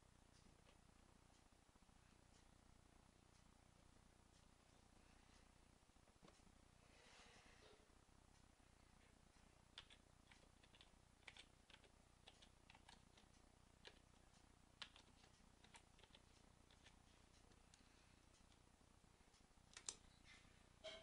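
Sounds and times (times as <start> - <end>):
computer keyboard keystrokes: 9.8 - 14.0, 14.8 - 17.0.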